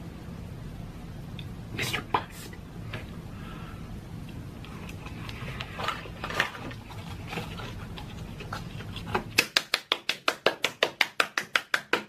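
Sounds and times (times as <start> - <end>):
fast sharp knocking taps: 9.4 - 12.0.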